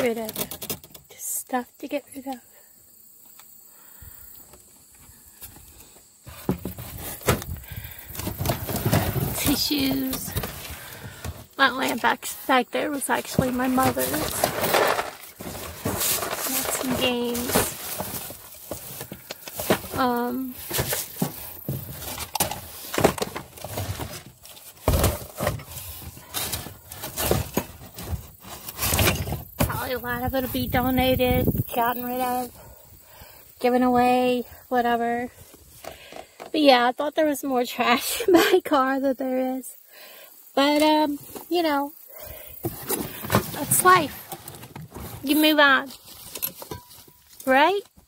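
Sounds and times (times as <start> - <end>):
belongings being rummaged: 6.0 - 32.6, 40.6 - 48.0.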